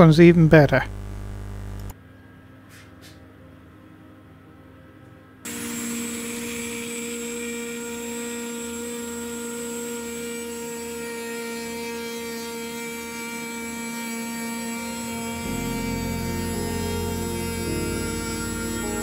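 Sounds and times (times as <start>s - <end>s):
router spindle whine: 0.7s - 1.9s, 5.5s - 19.0s
cutter shaving wood: 5.5s - 19.0s.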